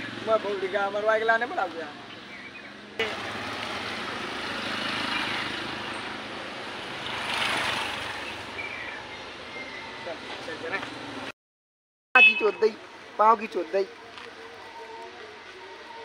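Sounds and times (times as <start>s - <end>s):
motorcycles passing: 0.0s - 11.3s
road traffic hum: 0.0s - 11.4s, 12.2s - 16.0s.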